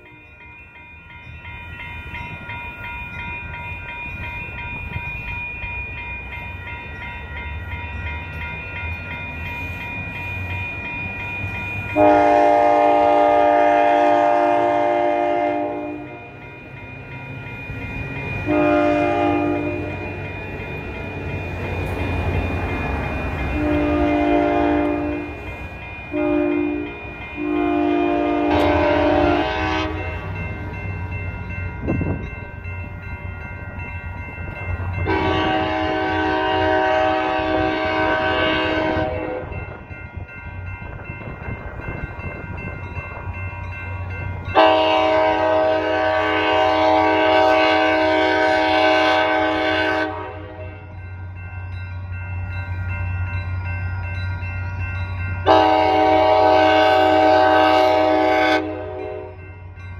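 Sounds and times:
level-crossing bells ringing: 0.0 - 13.6, 15.0 - 35.7, 39.2 - 45.1, 50.5 - 56.1, 58.9 - 59.9
passing train rumble: 0.0 - 59.9
locomotive horn blasts: 11.9 - 16.3, 18.4 - 20.2, 23.5 - 25.4, 26.1 - 30.2, 35.0 - 39.6, 44.5 - 50.8, 55.4 - 59.4.

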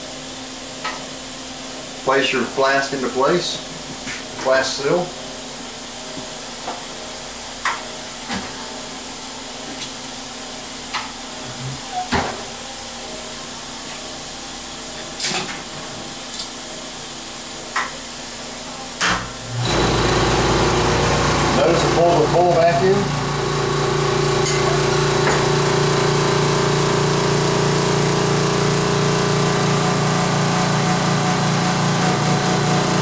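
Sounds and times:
vacuum pump humming: 19.4 - 33.0.

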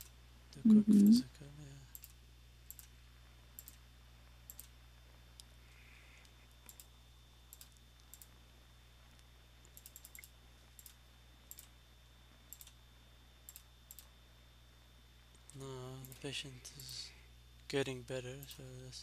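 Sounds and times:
low electrical hum: 0.0 - 19.0
computer mouse clicks: 3.6 - 3.8, 4.5 - 4.7, 6.6 - 6.9, 7.5 - 8.3, 9.7 - 11.7, 12.5 - 12.8, 13.5 - 14.1.

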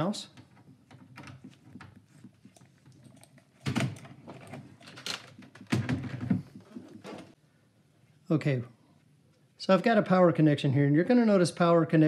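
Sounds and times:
cable rustling: 0.4 - 7.4.

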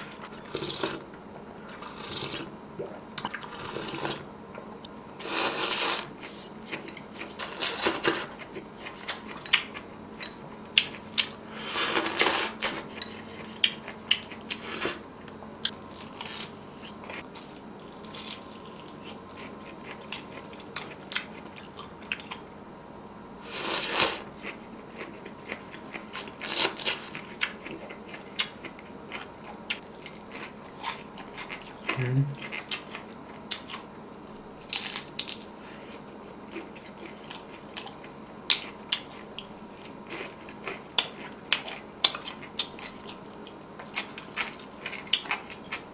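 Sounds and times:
slurping noodles: 3.3 - 4.2
crunchy chewing: 15.6 - 22.4, 23.8 - 45.9.

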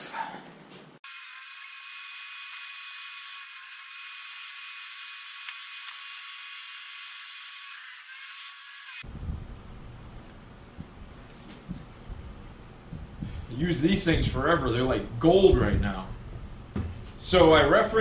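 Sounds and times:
table saw motor whine: 1.0 - 9.1.

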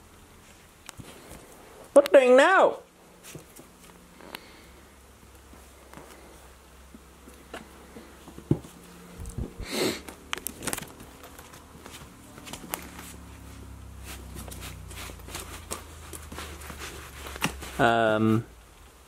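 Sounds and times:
fabric pen rustling: 7.4 - 18.0.

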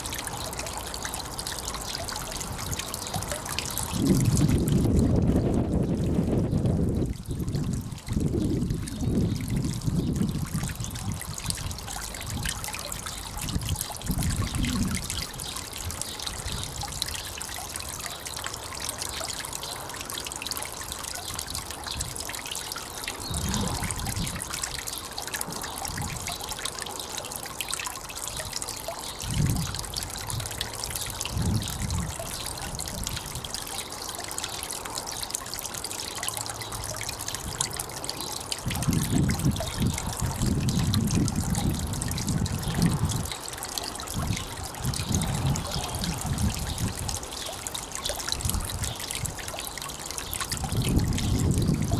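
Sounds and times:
waterfall splashing into pond: 0.0 - 51.9
wind buffeting microphone: 2.5 - 17.0, 23.2 - 24.6, 29.2 - 30.6, 31.2 - 33.6, 38.6 - 43.3, 44.1 - 47.3, 48.3 - 49.5, 50.4 - 51.9.

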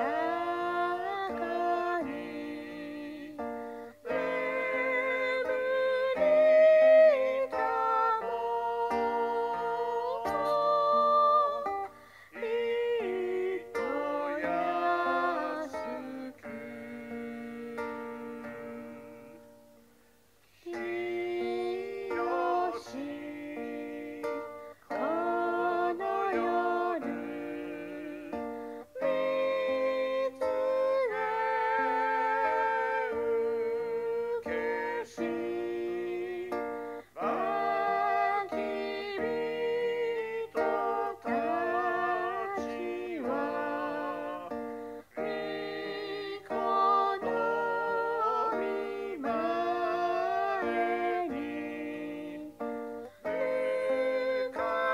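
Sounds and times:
acoustic guitar: 0.0 - 54.9
hymn singing: 0.0 - 54.9.

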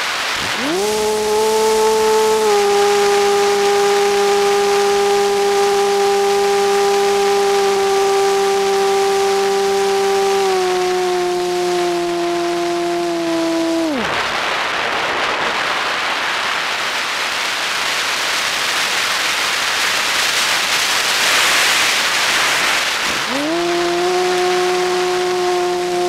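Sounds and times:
model plane motor whine: 0.4 - 14.1, 23.1 - 26.0.

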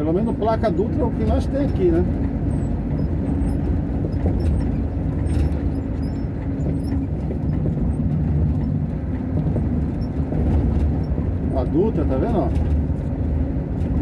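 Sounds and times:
road noise: 0.0 - 14.0
truck diesel engine hum: 0.0 - 14.0.

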